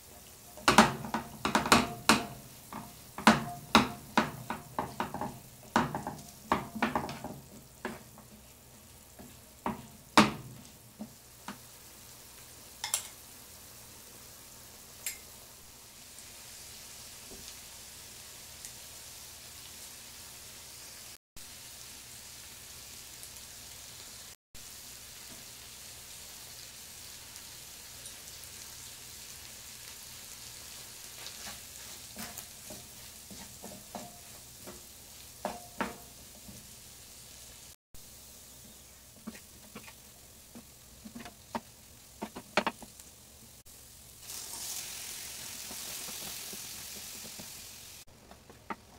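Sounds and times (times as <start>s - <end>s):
chickpeas sizzling in oil: 0.0s - 48.9s
wooden spatula scraping pan: 2.7s - 8.5s, 31.1s - 36.6s, 38.7s - 42.9s, 45.5s - 48.9s.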